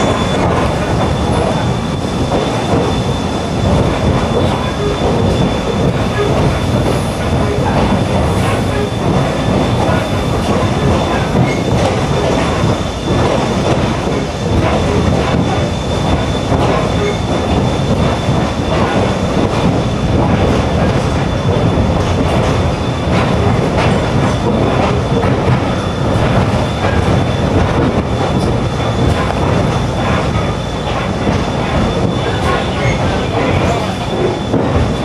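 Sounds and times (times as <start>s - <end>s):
rail joint clicks: 0.0s - 35.0s
train wheels rumbling on rails: 0.0s - 35.0s.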